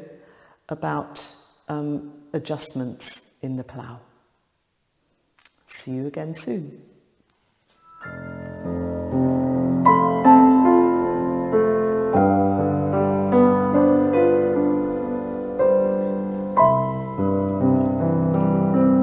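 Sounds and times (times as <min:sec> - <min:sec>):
solo piano music: 0:07.8 - 0:19.0.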